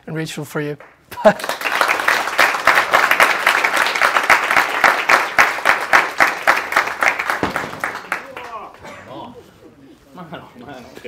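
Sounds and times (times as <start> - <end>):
audience applauding: 0.8 - 9.3.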